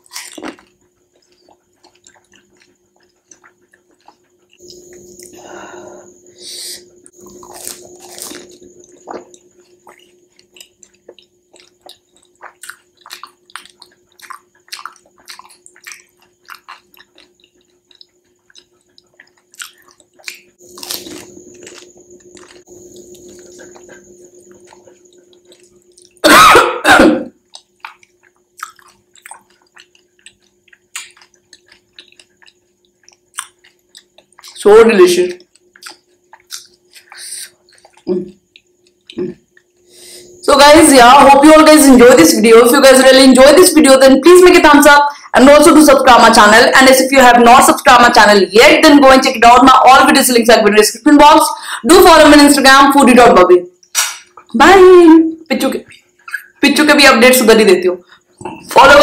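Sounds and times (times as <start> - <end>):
wet chewing with crackles: 0.0 - 5.4, 6.8 - 26.2, 27.3 - 40.4, 55.3 - 56.9
person coughing: 26.2 - 27.4.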